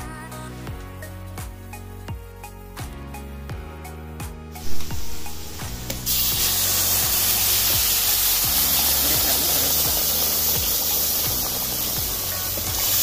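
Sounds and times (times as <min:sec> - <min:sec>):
oil sizzling loudly in a pan: 0:04.6 - 0:13.0.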